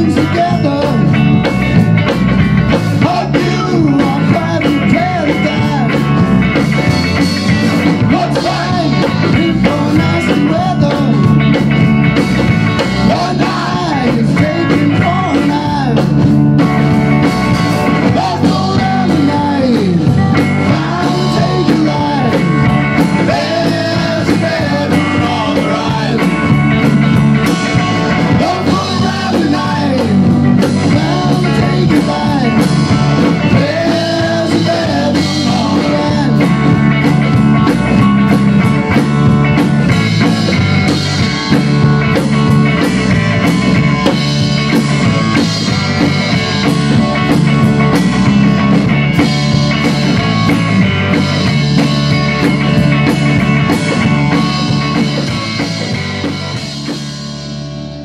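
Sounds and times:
person singing: 0:00.0 - 0:01.4, 0:02.9 - 0:06.2, 0:07.8 - 0:11.4, 0:12.8 - 0:16.2, 0:17.9 - 0:26.6, 0:27.4 - 0:37.1
rock band playing: 0:00.0 - 0:58.0.

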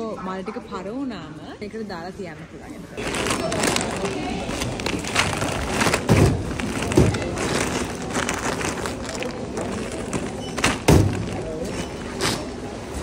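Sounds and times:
background noise: 0:00.0 - 0:13.0
plastic bag rustling: 0:03.0 - 0:12.6.

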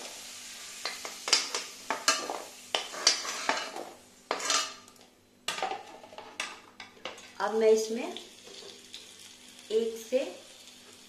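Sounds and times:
oil sizzling: 0:00.0 - 0:11.0
metal spoon scraping a wok: 0:00.7 - 0:04.8.

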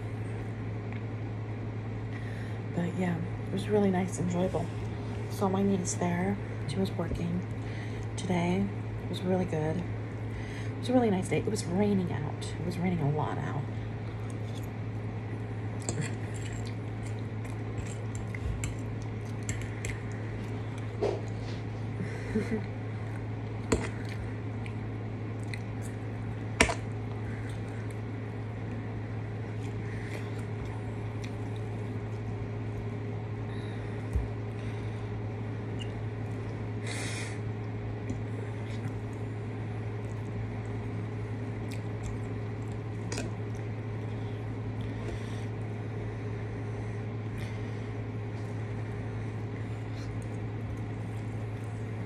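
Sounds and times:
steady low hum: 0:00.0 - 0:52.0
food being chewed: 0:14.0 - 0:21.9, 0:23.0 - 0:28.8, 0:29.4 - 0:33.0, 0:37.6 - 0:45.7, 0:49.4 - 0:51.9.

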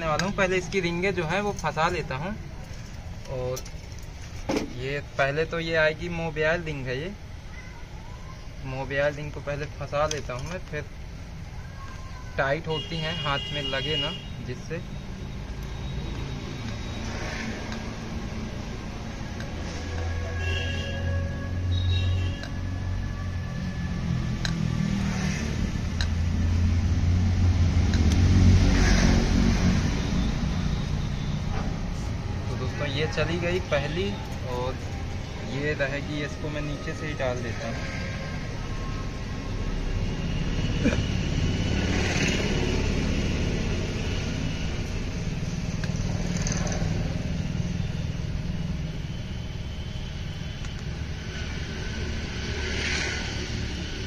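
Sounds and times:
engine rumbling: 0:13.4 - 0:54.0.

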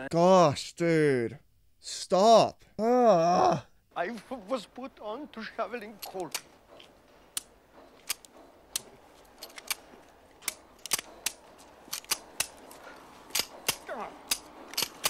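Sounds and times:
pistol clicking on misfire: 0:07.4 - 0:15.0.

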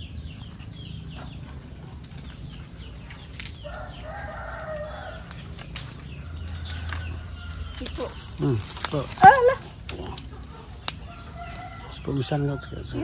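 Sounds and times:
branches snapping and leaves rustling: 0:02.0 - 0:11.9
rooster crowing: 0:03.6 - 0:05.5, 0:06.3 - 0:07.8.

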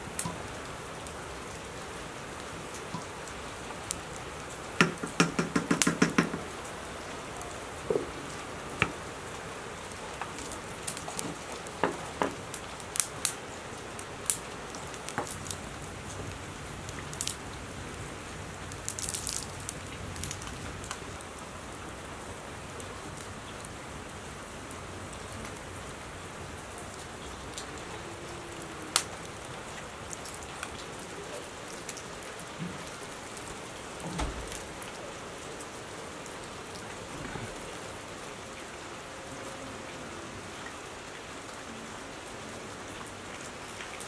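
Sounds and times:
wood fire crackling: 0:00.0 - 0:39.3
steady hiss: 0:00.0 - 0:41.8
fire popping: 0:02.6 - 0:21.4, 0:26.7 - 0:34.9.

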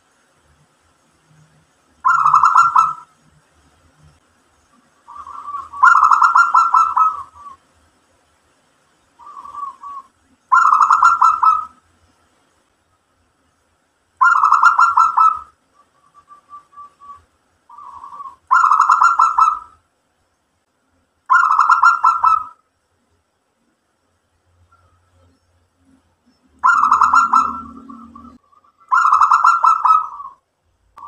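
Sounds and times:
dove trilled cooing: 0:02.0 - 0:03.2, 0:05.0 - 0:07.6, 0:09.2 - 0:11.8, 0:14.2 - 0:19.8, 0:21.3 - 0:22.6, 0:26.6 - 0:30.4.

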